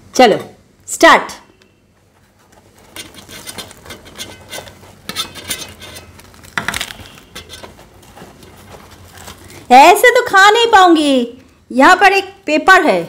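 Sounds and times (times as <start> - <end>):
fried bread crackling and crunching: 2.1 - 9.8.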